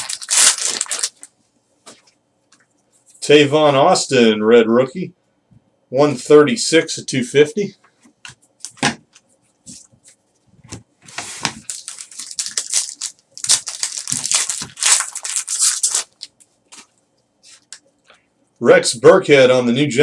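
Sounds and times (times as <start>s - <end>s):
foil wrapper tearing and crinkling: 0.0s - 1.3s, 11.4s - 16.9s.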